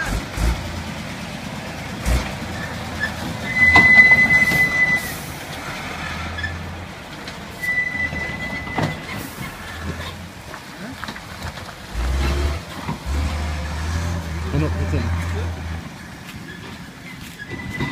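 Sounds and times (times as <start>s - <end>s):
diesel engine working under load: 0.0s - 17.9s
high steady whistle: 3.4s - 5.2s.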